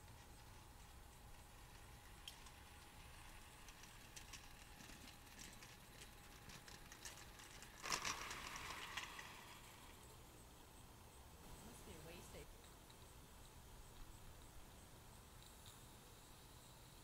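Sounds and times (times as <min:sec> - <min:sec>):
model train wheels clicking: 0:00.0 - 0:10.6.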